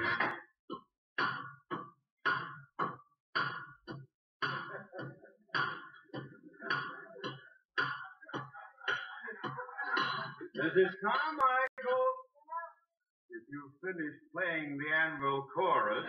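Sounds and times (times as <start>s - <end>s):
metallic banging on pipes: 1.2s - 10.6s.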